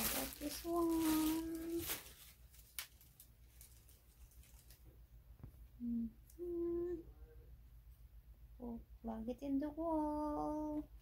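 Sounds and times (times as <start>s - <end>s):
woman humming: 5.8s - 7.1s.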